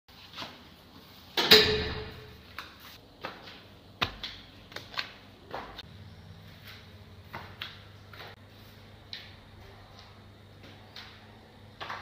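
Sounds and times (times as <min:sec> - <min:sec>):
loud ringing knock: 0:01.5 - 0:02.3
flip-flops slapping on tile steps: 0:02.4 - 0:05.9, 0:06.6 - 0:12.0.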